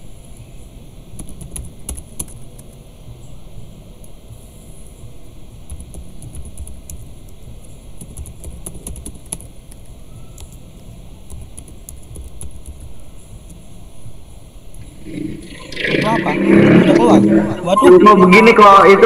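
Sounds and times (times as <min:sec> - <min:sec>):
keyboard keys clicking: 0:08.0 - 0:09.5.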